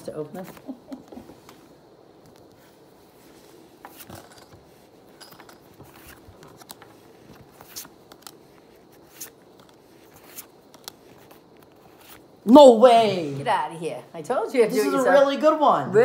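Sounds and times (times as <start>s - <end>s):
cards flicking and sliding: 5.8s - 12.3s.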